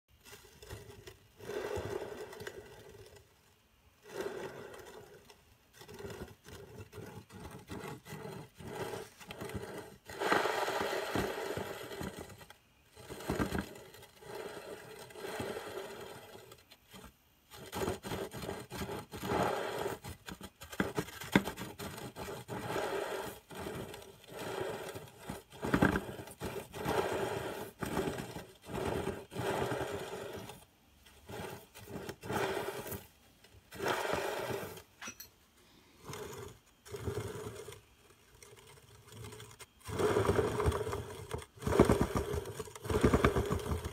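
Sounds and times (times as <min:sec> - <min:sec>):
bearing grinding: 0:00.2 - 0:33.1.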